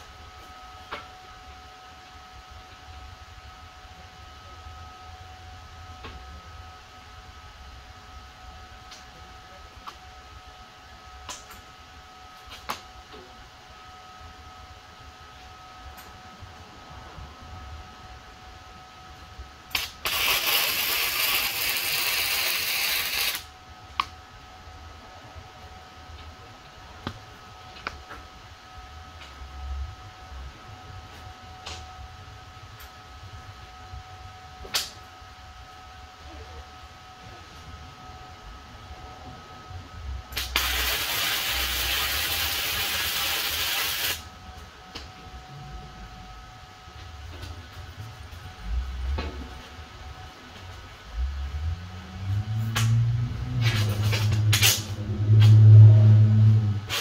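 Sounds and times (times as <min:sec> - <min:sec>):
welding arc hissing: 0:19.7 - 0:23.5, 0:40.4 - 0:44.2.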